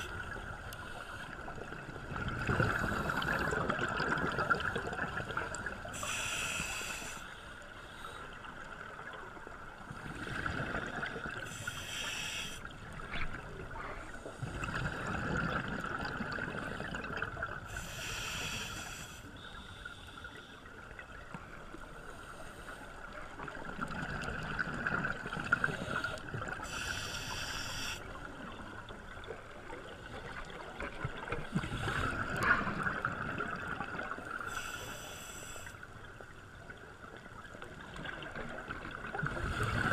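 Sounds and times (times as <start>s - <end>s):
regulator breath hiss: 5.9s - 8.3s, 11.4s - 12.7s, 17.7s - 20.4s, 25.7s - 28.1s, 34.5s - 35.8s.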